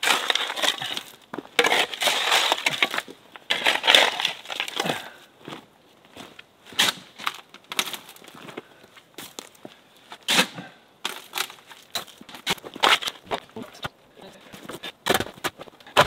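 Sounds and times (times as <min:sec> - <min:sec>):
spade digging into soil: 0:00.0 - 0:05.0, 0:06.8 - 0:07.2, 0:10.2 - 0:13.2.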